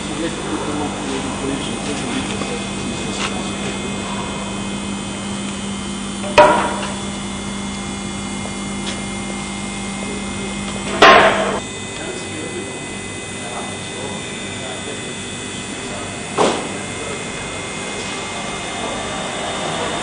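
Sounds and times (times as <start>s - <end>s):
steady low hum: 0.0s - 20.0s
loud sharp knocks: 6.2s - 7.0s, 10.9s - 11.6s, 16.4s - 16.8s.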